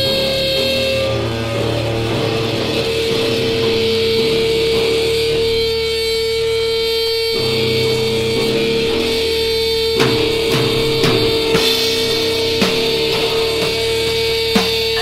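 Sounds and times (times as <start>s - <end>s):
distorted guitar and bass chords: 0.0s - 15.0s
held drone tone: 0.0s - 15.0s
drum hits: 10.0s - 15.0s.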